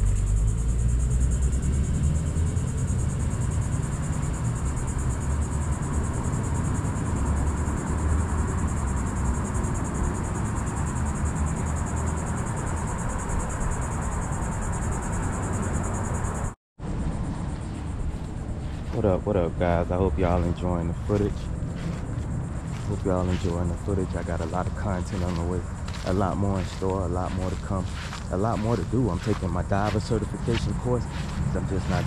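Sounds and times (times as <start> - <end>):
insect chorus trilling: 0.0 - 32.0
low rumble: 16.8 - 32.0.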